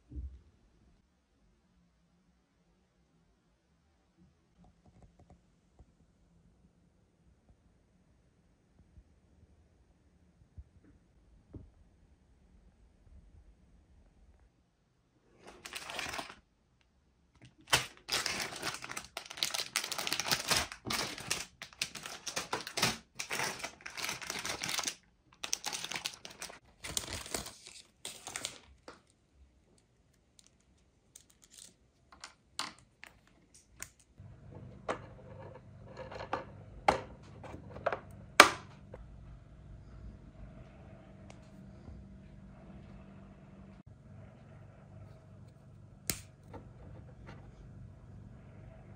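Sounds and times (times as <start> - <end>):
plastic bags crinkling and tearing: 15.4 - 16.4, 17.4 - 29.0
faint low hum: 26.2 - 48.9.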